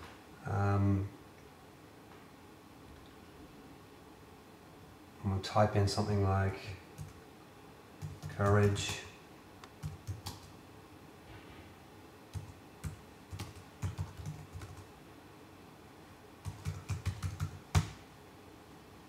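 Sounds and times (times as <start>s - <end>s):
computer keyboard typing: 7.0s - 7.2s, 8.0s - 9.1s, 9.7s - 10.6s, 12.3s - 14.9s, 16.4s - 18.0s.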